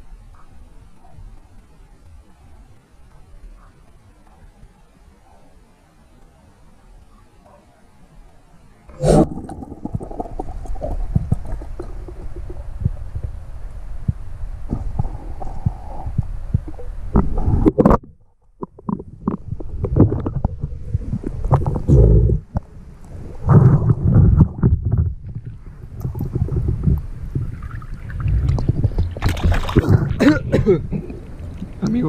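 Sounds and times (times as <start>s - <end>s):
muffled underwater rumbling and gurgling: 8.8s - 32.0s
water sloshing and splashing: 24.0s - 32.0s.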